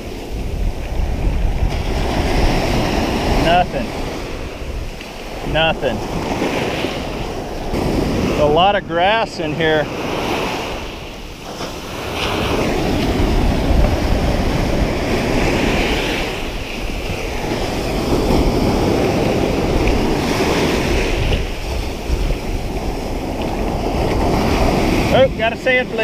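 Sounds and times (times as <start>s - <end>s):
surf washing over sand: 0.0s - 26.0s
wind buffeting microphone: 0.0s - 26.0s.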